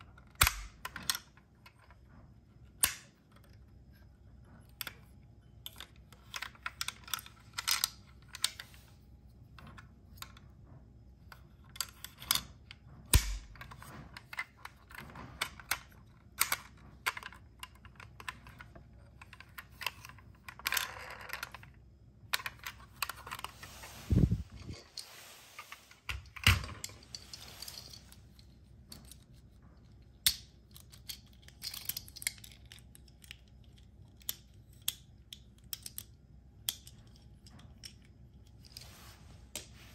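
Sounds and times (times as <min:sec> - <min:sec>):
rustling: 0:23.4 - 0:28.4
toy vehicles clicking: 0:30.2 - 0:38.6.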